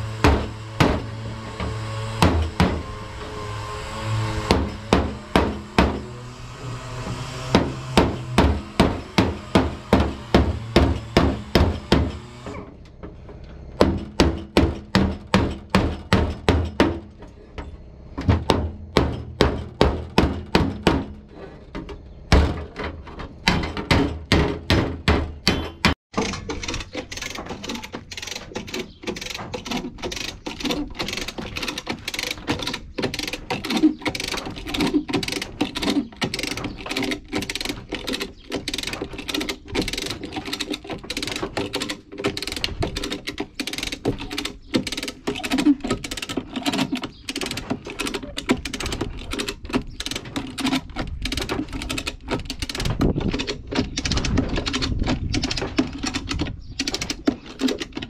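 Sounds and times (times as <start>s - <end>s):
hammer striking sheet metal: 6.9s - 12.2s
chain hoist ratchet clicking: 26.2s - 58.0s.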